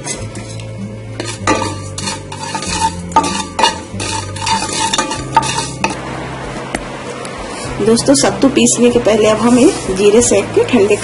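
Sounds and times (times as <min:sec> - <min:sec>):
spatula scraping seeds in a pan: 0:00.0 - 0:06.0.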